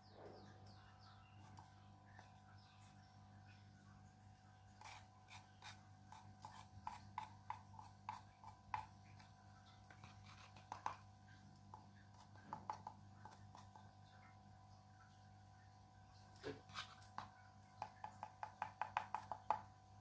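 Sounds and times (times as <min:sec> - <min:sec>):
spoon clicking and scraping on pot: 0:04.8 - 0:13.8.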